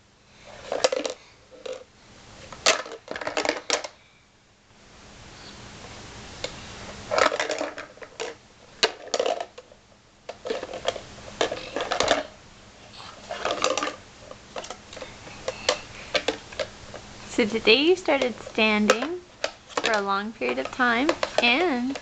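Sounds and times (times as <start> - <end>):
plastic blocks clattering in bucket: 0.6 - 1.8, 2.6 - 4.0, 7.1 - 9.7, 10.3 - 12.3, 13.3 - 14.0, 18.2 - 22.0.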